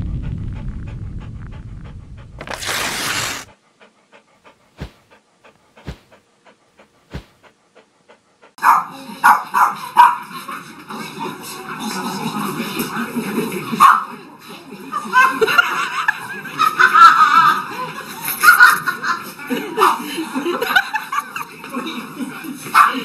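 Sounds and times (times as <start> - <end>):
rumbling whoosh: 0.0 - 2.5
dog panting: 0.8 - 10.0
dog sounds: 1.2 - 10.2.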